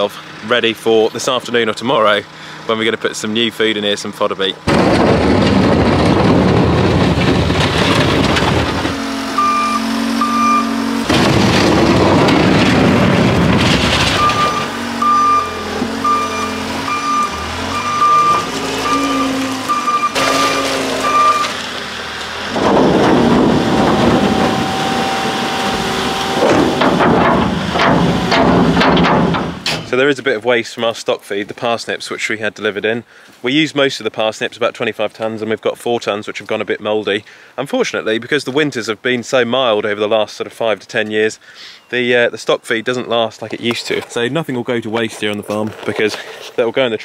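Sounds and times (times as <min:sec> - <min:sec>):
diesel engine running hard: 0:00.0 - 0:29.8
reversing alarm beeps: 0:09.3 - 0:10.9, 0:14.1 - 0:20.3, 0:21.0 - 0:21.5.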